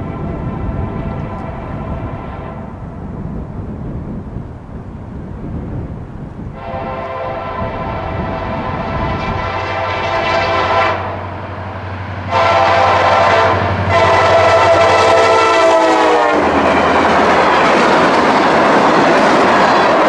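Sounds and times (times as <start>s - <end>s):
locomotive air horn blasts: 0.0s - 2.8s, 6.5s - 11.3s, 12.3s - 16.5s
train wheels rumbling on rails: 0.0s - 20.0s.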